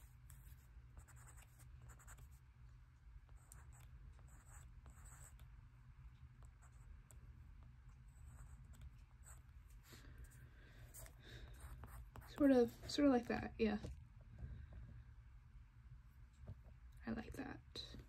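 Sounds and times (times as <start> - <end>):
pencil scratching on paper: 0.0 - 2.4, 3.3 - 5.4, 8.1 - 9.4, 10.9 - 13.1
low steady hum: 0.0 - 18.0.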